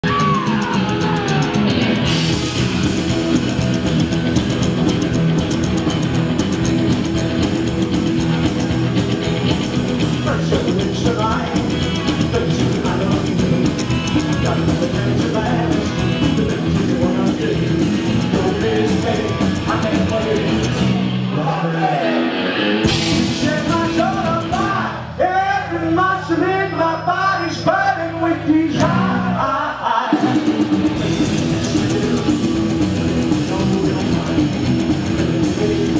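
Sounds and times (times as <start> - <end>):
electric guitar riff: 0.0 - 25.2, 30.2 - 35.9
rockabilly band playing live: 0.0 - 26.2, 27.8 - 35.9
man singing: 10.1 - 22.2, 23.1 - 35.9.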